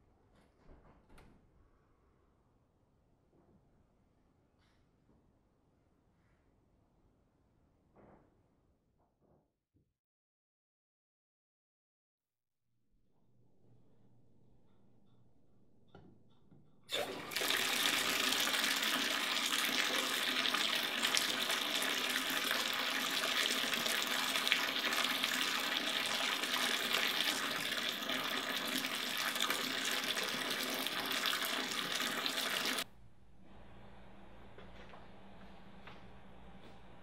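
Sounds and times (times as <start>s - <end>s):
water running into bathtub: 16.9s - 32.9s.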